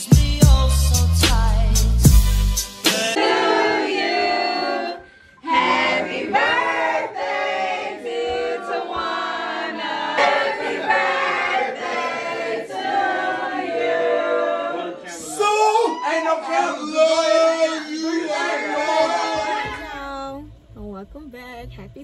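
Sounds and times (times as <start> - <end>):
music with voices singing together: 0.0 - 15.1.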